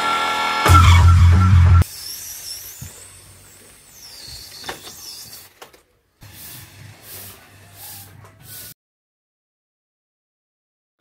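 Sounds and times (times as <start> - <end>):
falling whistle: 0.0 - 2.8
air hissing out of balloon: 1.8 - 5.5, 6.2 - 8.8.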